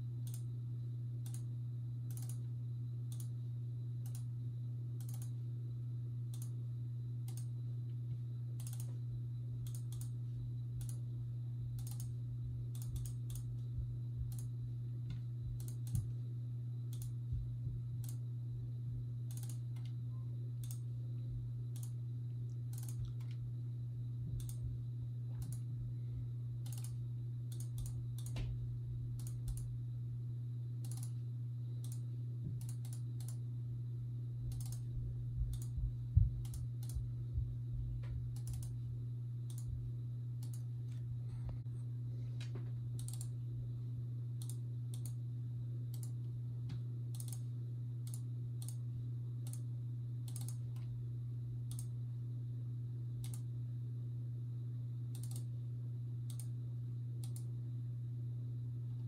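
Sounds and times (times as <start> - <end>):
steady low hum: 0.0 - 59.0
computer mouse clicking: 0.2 - 0.5, 1.2 - 1.5, 2.1 - 2.4, 3.1 - 3.4, 4.0 - 4.3, 5.0 - 5.4, 6.3 - 6.6, 7.3 - 7.5, 8.6 - 9.0, 9.6 - 10.2, 10.8 - 11.0, 11.8 - 13.7, 15.6 - 16.1, 16.9 - 17.2, 18.0 - 18.3, 19.3 - 20.0, 20.6 - 20.9, 21.8 - 23.4, 24.4 - 24.6, 25.4 - 25.7, 26.6 - 28.4, 29.2 - 29.7, 30.8 - 31.2, 31.8 - 33.4, 34.5 - 34.9, 35.5 - 35.8, 36.4 - 37.1, 38.4 - 38.8, 39.5 - 39.7, 40.4 - 41.0, 43.0 - 43.4, 44.4 - 45.2, 45.9 - 46.2, 47.1 - 48.8, 49.4 - 49.7, 50.3 - 50.9, 51.7 - 51.9, 53.2 - 53.5, 55.1 - 55.5, 56.3 - 56.5, 57.2 - 57.5
low thumps: 35.4 - 36.4.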